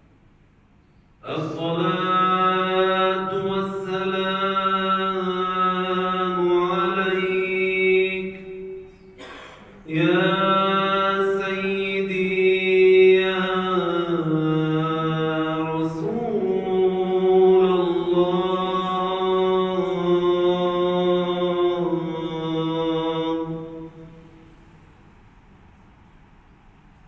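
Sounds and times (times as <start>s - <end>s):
man chanting: 1.2s - 8.9s, 9.8s - 24.5s.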